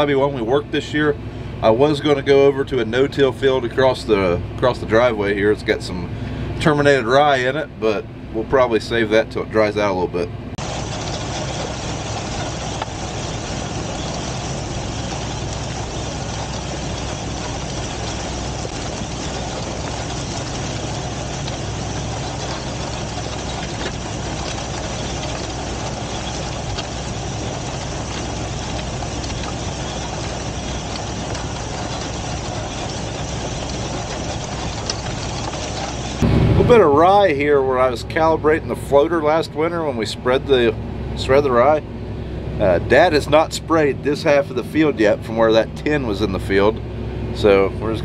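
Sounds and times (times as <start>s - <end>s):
tractor engine running: 0.0s - 48.0s
seed drill mechanical rumble: 10.6s - 48.0s.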